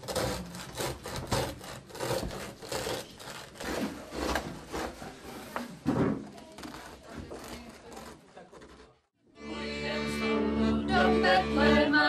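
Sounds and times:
bread knife sawing through bread: 0.0 - 5.5.

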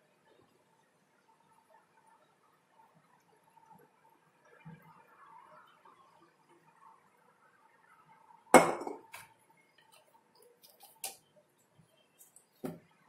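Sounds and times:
glass knocking on a counter: 8.6 - 9.1.

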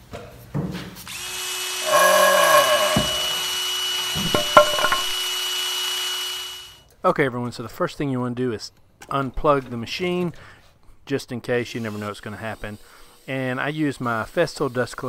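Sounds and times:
power drill whirring: 1.1 - 6.7.

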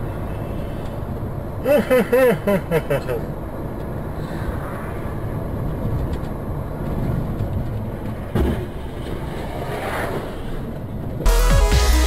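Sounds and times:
car engine rumble: 0.0 - 9.0
road noise: 0.0 - 12.0.

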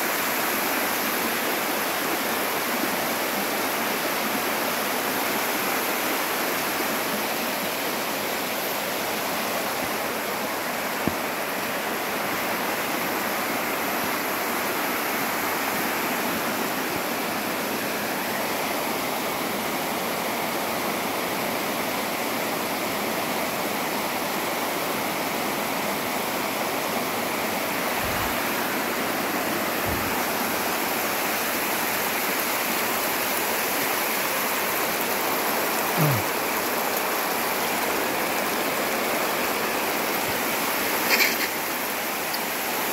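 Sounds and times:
whitewater rushing over rock: 22.8 - 42.9.

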